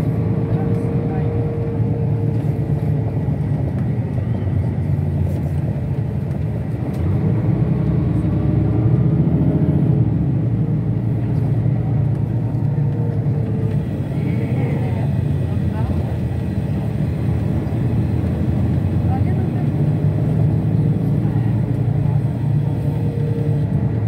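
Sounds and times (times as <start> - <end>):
moving bus rumble: 0.0 - 24.0.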